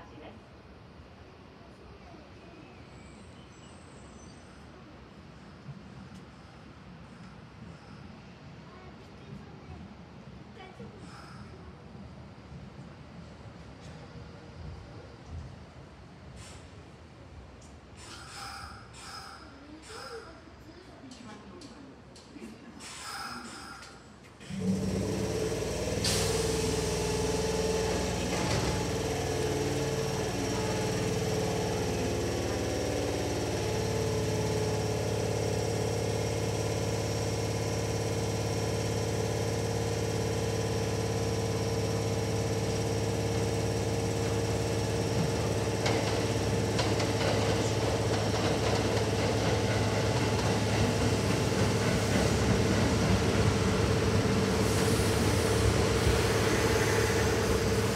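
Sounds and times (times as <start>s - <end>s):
passing electric train: 0.0s - 57.9s
electric train humming: 24.4s - 57.9s.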